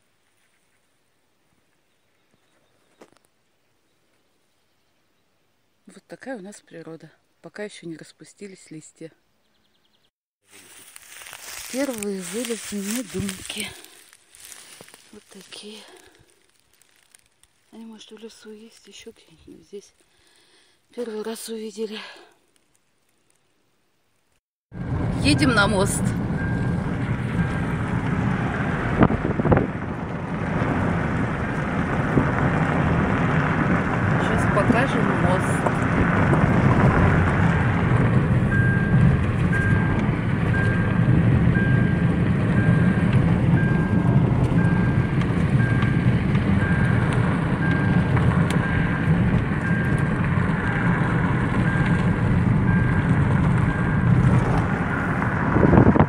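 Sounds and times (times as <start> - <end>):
rush of wind: 24.8 - 56.0
tyre rumble inside moving car: 24.8 - 56.0
short electronic beep: 38.5 - 41.0.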